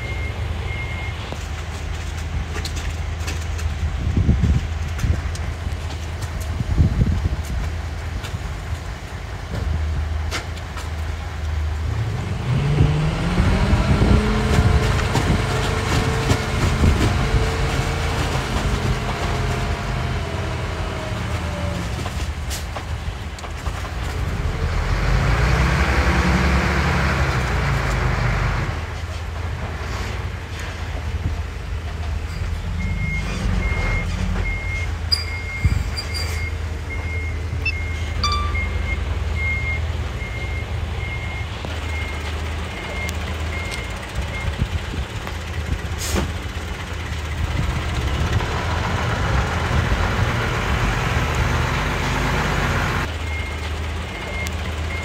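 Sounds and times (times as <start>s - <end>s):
reversing beeper: 0.0s - 1.2s, 32.7s - 44.5s.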